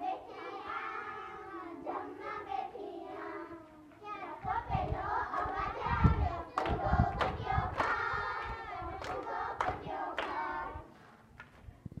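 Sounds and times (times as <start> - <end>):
girls singing together: 0.0 - 11.1
hands clapping in time: 6.5 - 8.1, 9.0 - 10.5, 11.3 - 11.7.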